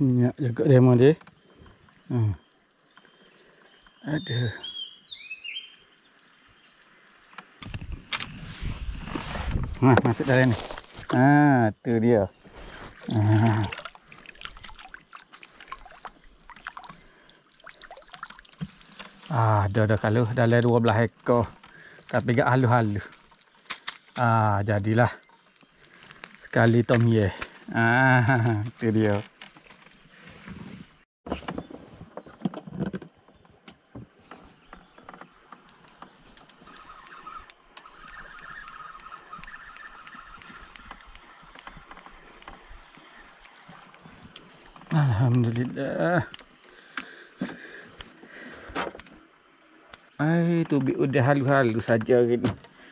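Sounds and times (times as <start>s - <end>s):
outdoor background noise: 0.0s - 52.9s
water trickling and dripping: 12.7s - 24.0s, 37.5s - 46.6s
fishing gear clicking and knocking: 23.0s - 24.3s
chirring animal chorus: 36.6s - 41.9s.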